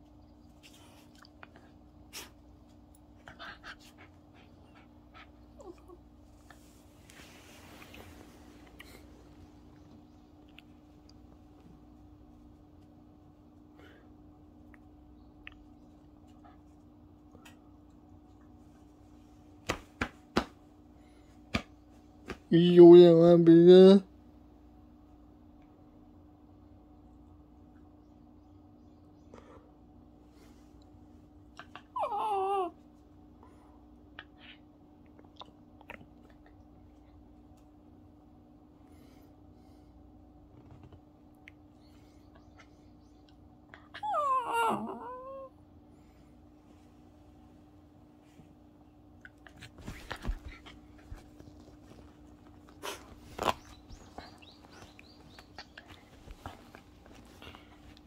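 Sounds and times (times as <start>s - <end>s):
small dog whining: 5.5s - 6.1s, 31.6s - 32.9s, 43.8s - 45.6s.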